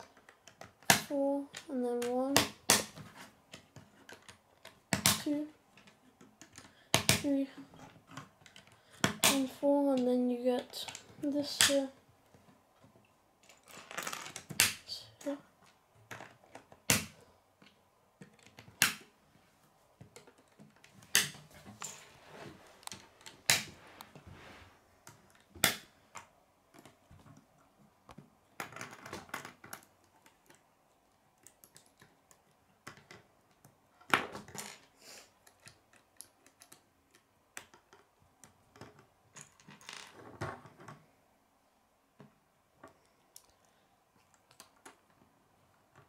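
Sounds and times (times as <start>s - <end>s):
plastic pieces snapping together: 14.2s - 14.8s, 25.3s - 27.0s.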